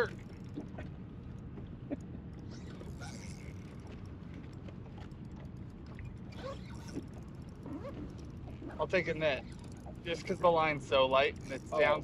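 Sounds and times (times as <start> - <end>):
low rumble of wind and water: 0.0 - 12.0
fishing reel clicking: 2.8 - 3.8, 9.1 - 12.0.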